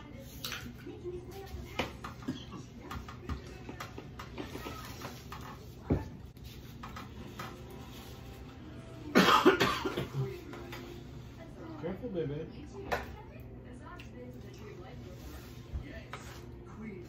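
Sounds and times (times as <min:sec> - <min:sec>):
person coughing: 0:09.1 - 0:10.3.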